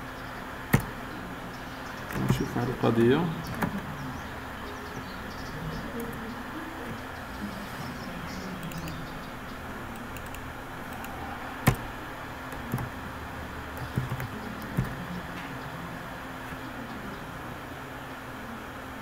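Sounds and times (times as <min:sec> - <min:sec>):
low hum of room noise: 0:00.0 - 0:19.0
computer keyboard keystrokes: 0:00.7 - 0:00.9, 0:02.0 - 0:02.5, 0:08.6 - 0:09.0, 0:09.9 - 0:11.9, 0:12.5 - 0:13.0, 0:13.7 - 0:15.0.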